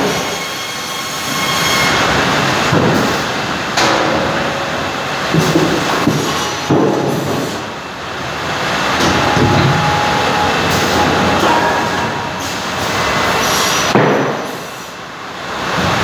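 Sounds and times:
feed rollers and conveyors rumbling: 0.0 - 16.0
sharp knocks of boards: 5.3 - 7.6, 13.9 - 14.6.

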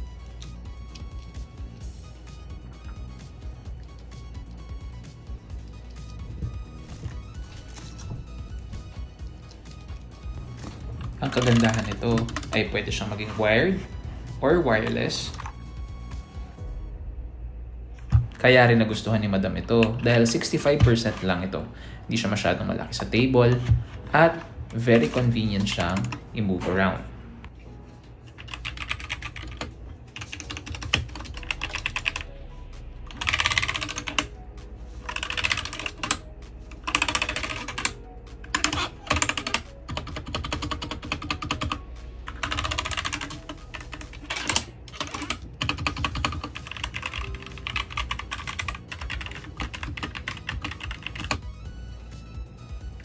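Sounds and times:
mechanical keyboard typing: 10.6 - 13.5, 19.8 - 21.5, 22.8 - 26.2, 28.3 - 32.3, 33.1 - 34.3, 35.0 - 51.5.

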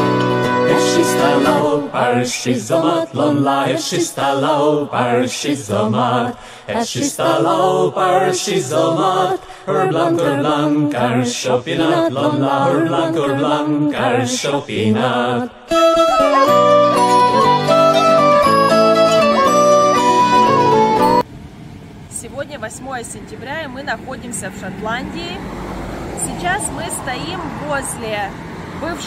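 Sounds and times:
chant-like singing voices: 0.5 - 16.3.

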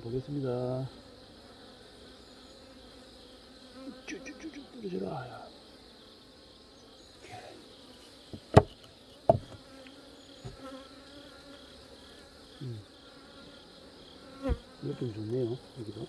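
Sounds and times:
honeybees humming: 0.0 - 16.0
sharp knocks: 8.3 - 9.6
faint taps: 8.3 - 10.6.

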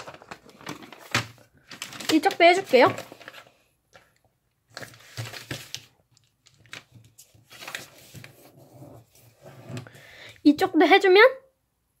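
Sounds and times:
paper rustling while folded: 0.0 - 3.7, 4.7 - 9.9.

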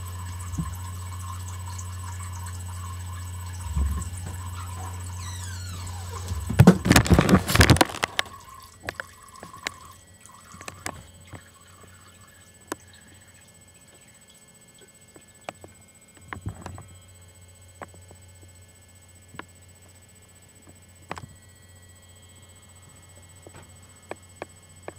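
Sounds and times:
cat urinating into toilet water: 0.0 - 15.5.

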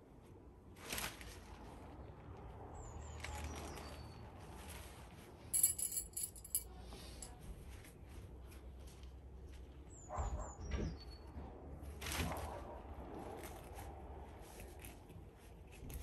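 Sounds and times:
metal tent pegs clinking: 5.5 - 6.6.

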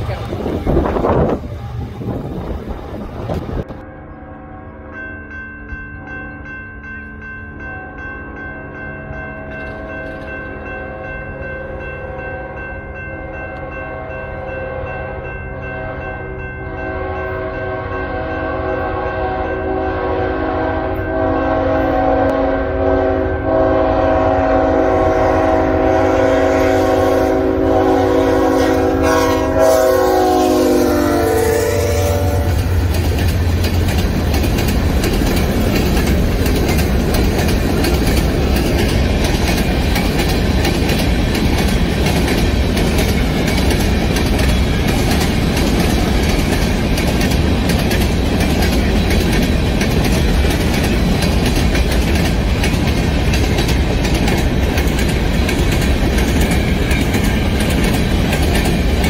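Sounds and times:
rail cars rolling on rails: 0.0 - 59.0
locomotive air horn: 13.2 - 32.9.

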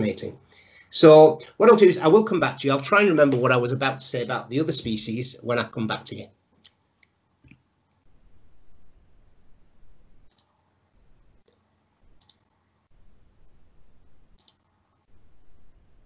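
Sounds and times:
low room noise: 0.0 - 16.0
computer mouse clicking: 10.3 - 10.6, 12.2 - 12.6, 14.4 - 14.7.

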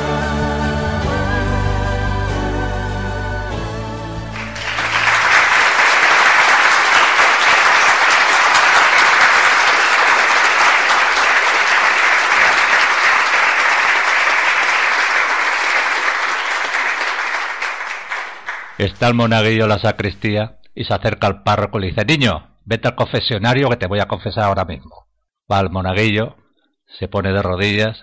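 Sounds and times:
song ending notes: 0.0 - 5.6
audience applause: 4.3 - 19.2.

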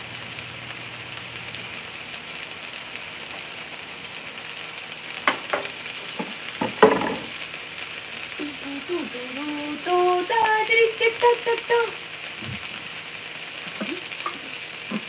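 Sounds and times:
food sizzling in a pan: 0.0 - 15.0
kitchen utensils knocking and clinking: 5.3 - 7.3.

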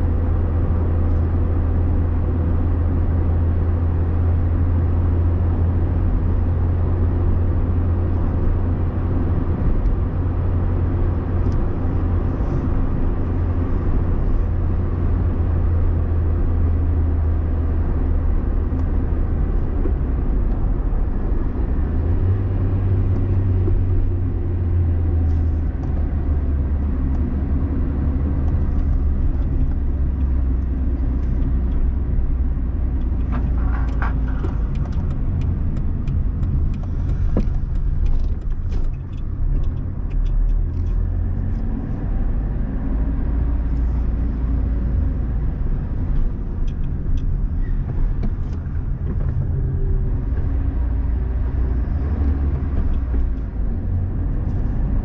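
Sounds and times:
car engine and road noise: 0.0 - 55.0
light ticks and rattles: 32.9 - 41.6.

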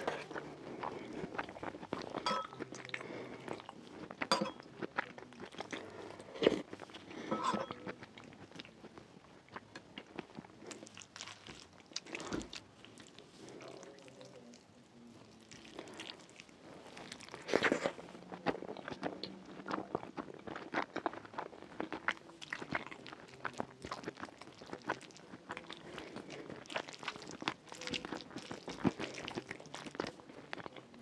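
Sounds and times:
wet chewing and smacking: 0.0 - 14.6, 15.2 - 31.0
fingers squishing soft food: 9.5 - 31.0.

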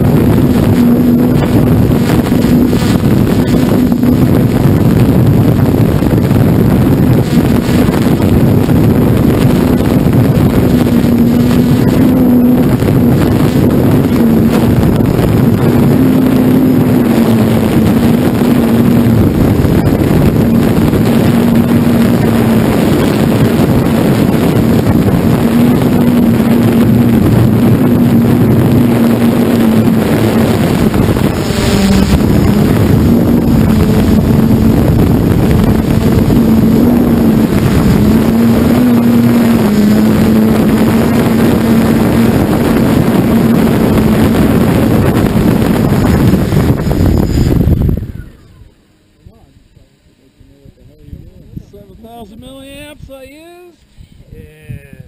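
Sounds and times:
model aircraft motor and propeller: 0.0 - 47.8
wind rush on microphone: 0.0 - 55.0.

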